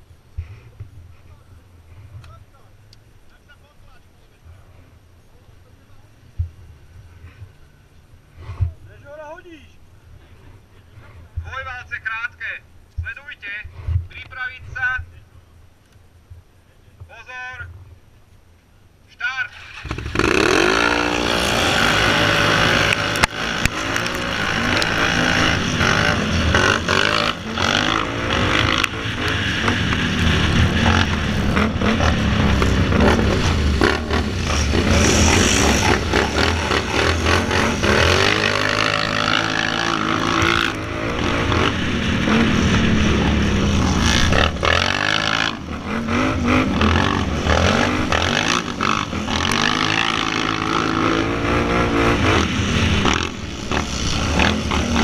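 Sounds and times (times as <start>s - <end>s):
atv engine revving: 19.4s - 55.0s.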